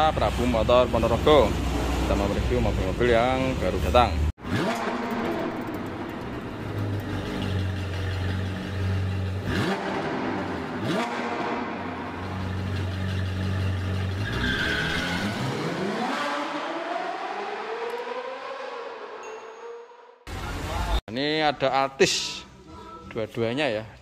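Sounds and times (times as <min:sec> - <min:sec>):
sports car engine revving: 0:00.0 - 0:19.1.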